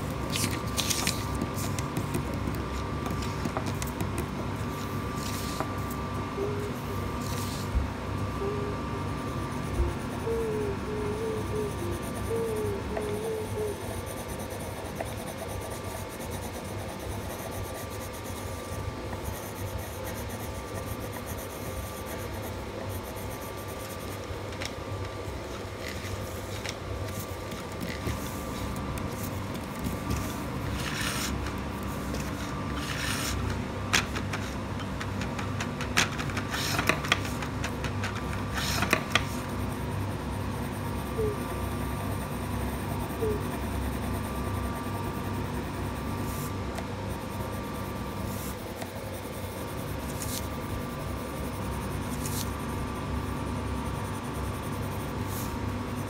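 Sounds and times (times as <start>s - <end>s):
pencil scratching on paper: 0.0s - 5.7s, 13.0s - 24.2s, 25.9s - 33.5s
steady low hum: 0.0s - 56.0s
sharp pencil ticks: 11.9s - 24.2s.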